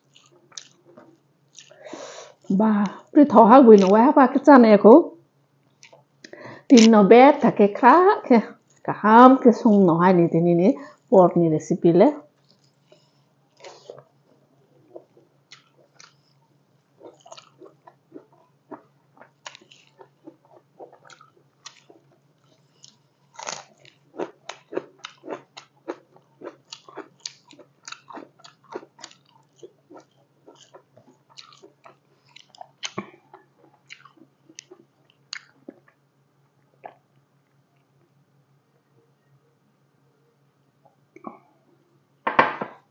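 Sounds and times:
person chewing food: 0.0s - 3.2s, 5.7s - 6.9s, 12.4s - 36.0s.

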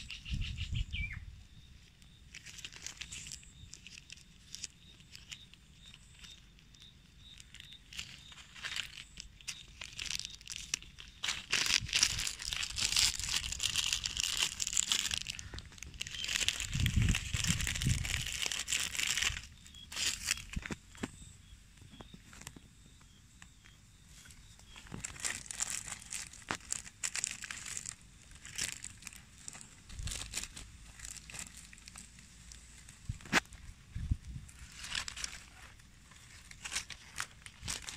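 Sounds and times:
plastic bag crinkling: 2.3s - 6.6s, 7.2s - 20.8s, 24.7s - 33.4s, 34.5s - 37.9s.

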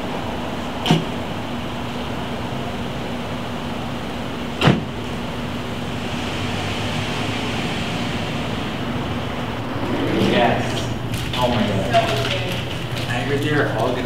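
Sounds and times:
low even hum: 8.8s - 13.8s.

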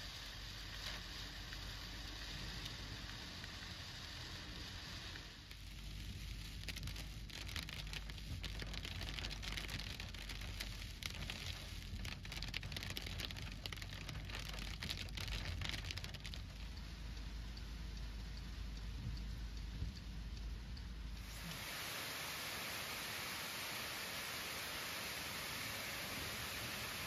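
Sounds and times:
heavy rain patter: 0.0s - 19.9s
low steady rumble: 0.0s - 27.0s.

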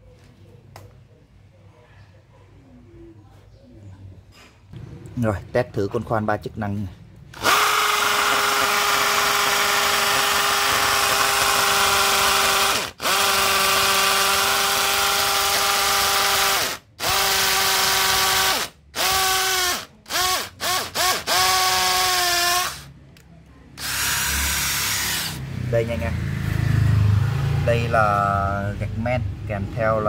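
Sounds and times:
cordless drill boring into tile: 7.4s - 22.9s, 23.8s - 25.4s.

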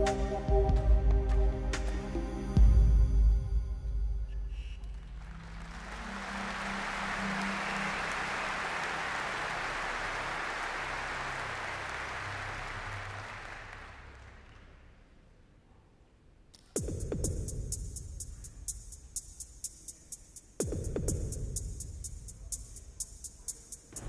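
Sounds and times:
large audience applauding: 4.9s - 15.0s.

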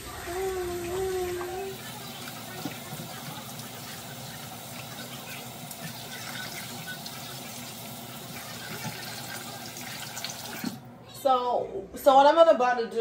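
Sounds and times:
faucet running into plastic bowl: 0.8s - 10.9s.

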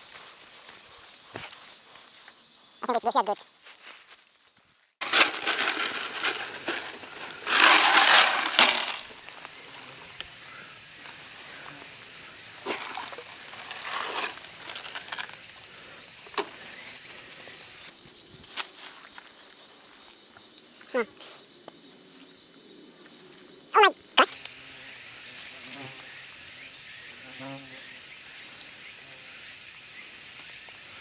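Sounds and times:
loud rustling: 5.0s - 9.1s
high-pitched insect buzzing: 22.2s - 29.6s.

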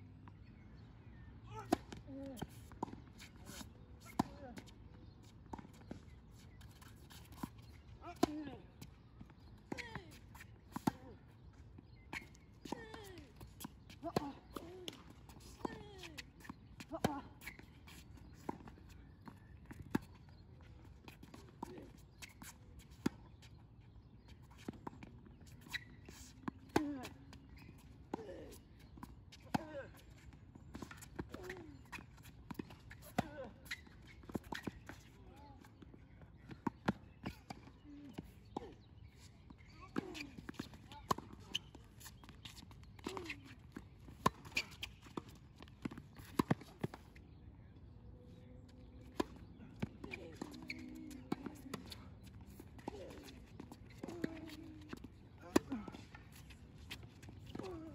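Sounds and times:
tennis ball bouncing: 1.7s - 4.7s, 9.6s - 11.0s, 30.8s - 35.1s, 40.0s - 47.1s, 49.0s - 57.9s
players' running footsteps: 50.1s - 57.9s.

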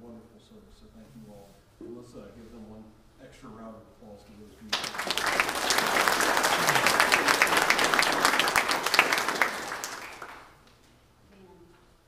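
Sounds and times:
congregation applauding: 4.7s - 10.7s.

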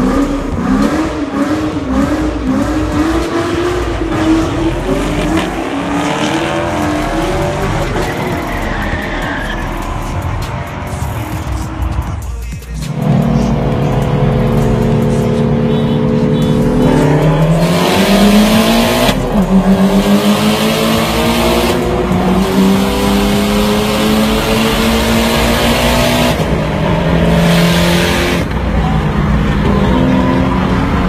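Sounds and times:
car engine accelerating hard: 0.0s - 31.0s.

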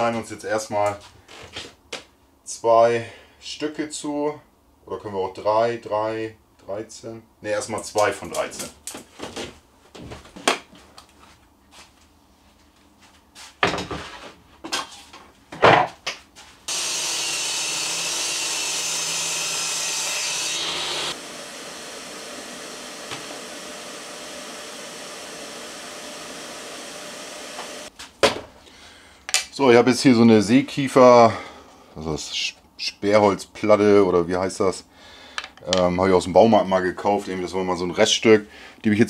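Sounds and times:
circular saw cutting plywood: 16.7s - 27.9s.

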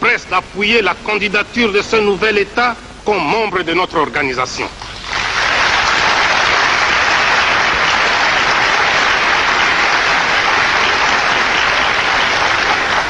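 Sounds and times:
crowd applause: 4.8s - 13.0s.

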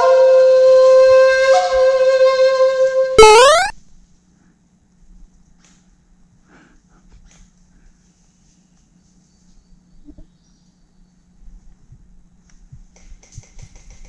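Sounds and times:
loud steady pitched tone: 3.2s - 3.7s.

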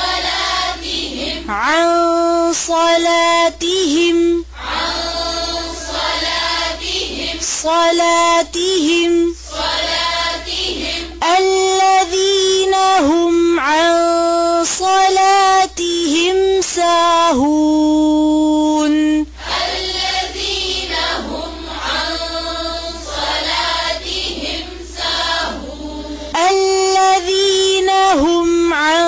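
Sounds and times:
group of voices chanting: 0.0s - 1.6s, 4.6s - 7.6s, 9.5s - 11.2s, 19.4s - 26.4s
person chanting melodically: 0.0s - 29.0s.

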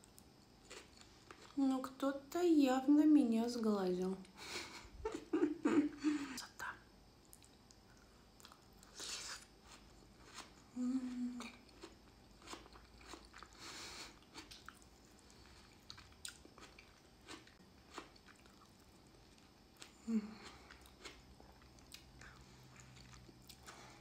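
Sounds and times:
soft chewing: 0.0s - 1.6s, 7.2s - 24.0s
person humming mm: 10.7s - 11.6s, 20.0s - 20.7s.

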